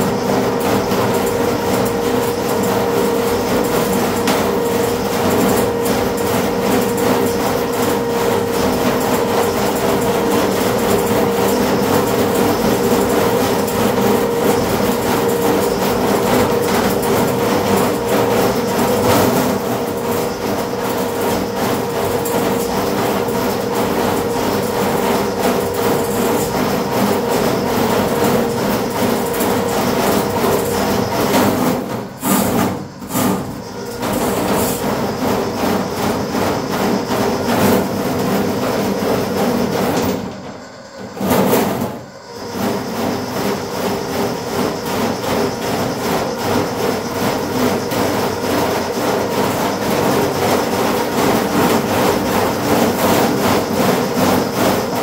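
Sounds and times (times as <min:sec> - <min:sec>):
drain cleaning machine running: 0:00.0 - 0:55.0.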